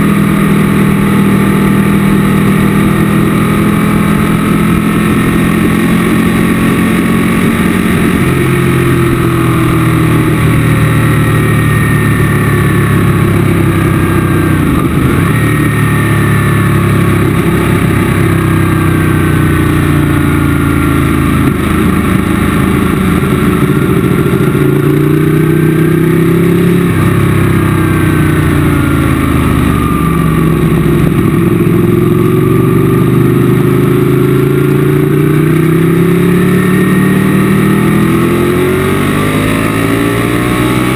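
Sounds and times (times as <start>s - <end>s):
motorcycle engine revving: 0.0s - 40.9s.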